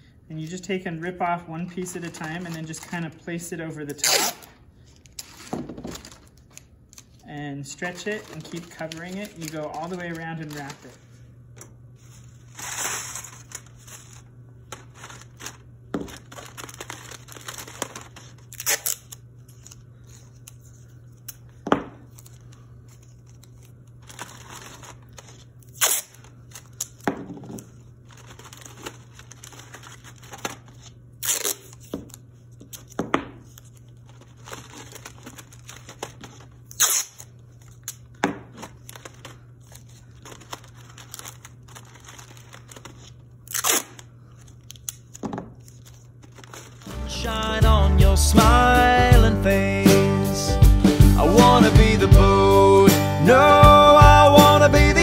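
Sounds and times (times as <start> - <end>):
steady low hum: 0.0 - 49.8
aluminium foil crinkling: 1.7 - 3.2, 4.0 - 11.1, 12.0 - 21.5, 22.1 - 27.0, 27.6 - 32.9, 33.5 - 46.9
masking tape ripping: 3.9 - 5.4, 12.5 - 19.7, 23.4 - 27.0, 28.3 - 31.8, 33.7 - 38.1, 40.4 - 45.2.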